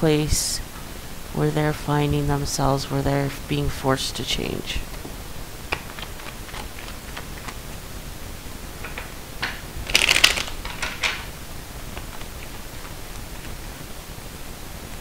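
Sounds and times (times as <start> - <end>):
cards clicking: 5.7 - 7.6, 8.8 - 11.3
rapid card flicks: 8.9 - 11.3.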